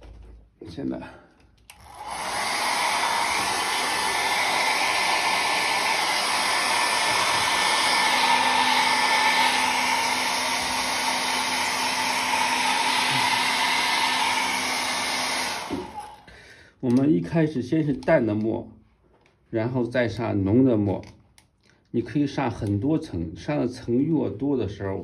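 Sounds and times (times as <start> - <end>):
hair dryer running: 1.7 - 16.3.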